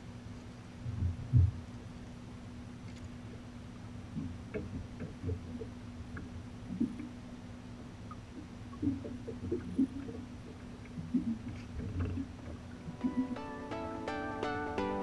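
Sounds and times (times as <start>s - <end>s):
steady low hum: 0.0s - 15.0s
waves slapping against boat hull: 4.1s - 7.2s, 8.1s - 13.3s.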